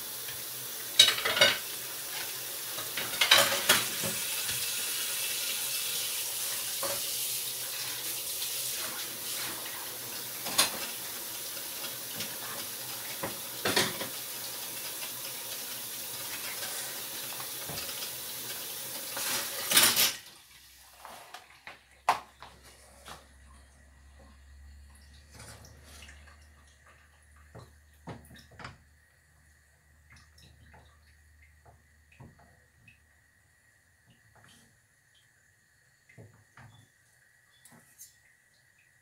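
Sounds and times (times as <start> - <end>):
dishes clinking: 1.0 - 1.6, 2.8 - 4.0, 13.6 - 14.1, 19.2 - 20.2
tap running into sink: 17.3 - 18.1.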